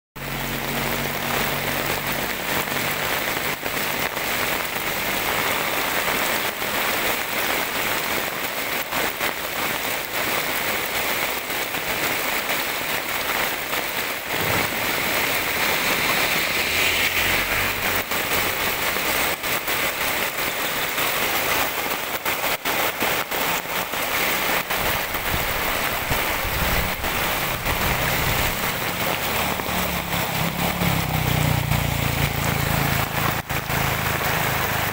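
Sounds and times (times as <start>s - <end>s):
heavy rain on a road: 0.2s - 34.9s
runoff water rushing in gutter: 0.2s - 34.9s.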